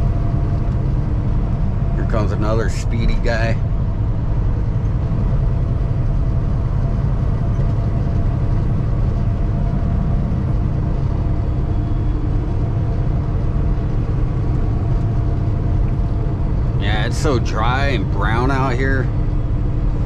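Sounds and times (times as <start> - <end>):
road and tyre rumble: 0.0 - 20.0
truck diesel engine running: 0.0 - 20.0.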